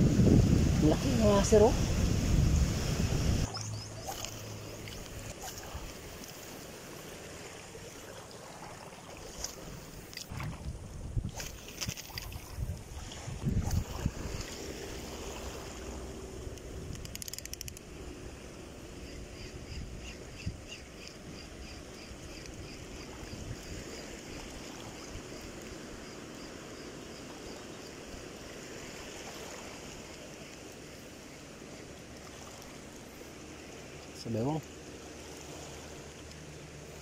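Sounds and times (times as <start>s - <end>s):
wind buffeting microphone: 0.0s - 3.8s, 10.3s - 14.6s
water lapping at shore: 0.0s - 37.0s.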